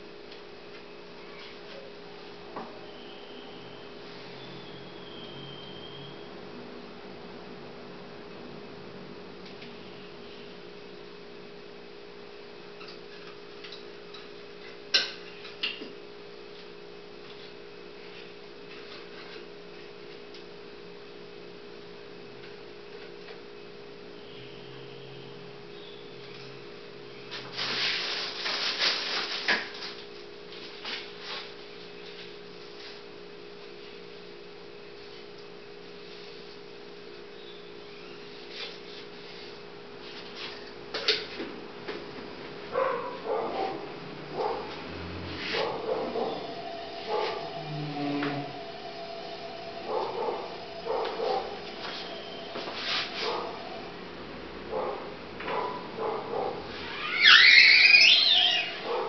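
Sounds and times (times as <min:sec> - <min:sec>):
steady electrical hum: 0:00.0 - 0:59.0
clattering and rubbing at workbench: 0:44.4 - 0:48.9, 0:49.9 - 0:53.8.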